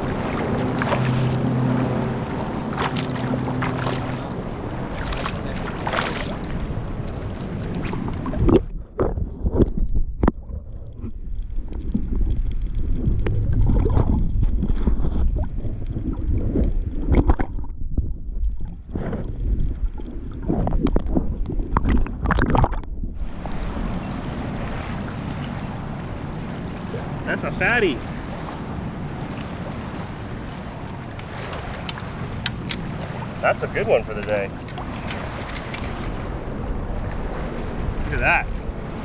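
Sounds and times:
low steady hum: 0.0 - 9.0
underwater bubbling: 0.0 - 39.0
water sloshing and splashing: 0.0 - 39.0
wind on microphone: 0.0 - 39.0
underwater knocks: 8.0 - 23.3.

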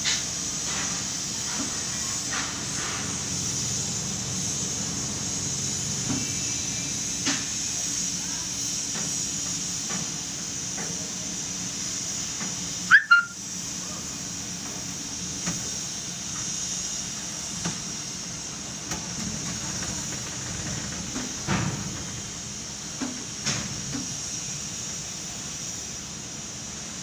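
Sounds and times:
crane machinery hiss and hum: 0.0 - 27.0
short high squeal: 12.9 - 13.4.

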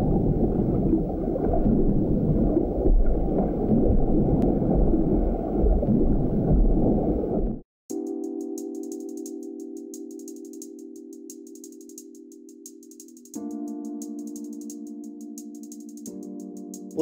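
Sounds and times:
muffled underwater rumble and gurgle: 0.0 - 7.6.

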